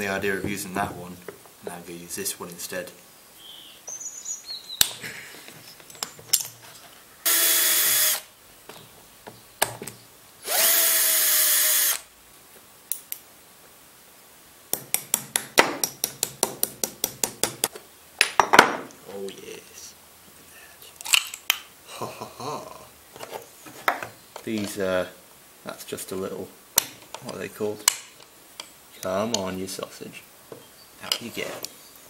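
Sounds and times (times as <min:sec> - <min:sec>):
cordless drill running: 0:07.2 - 0:08.3, 0:10.4 - 0:12.0.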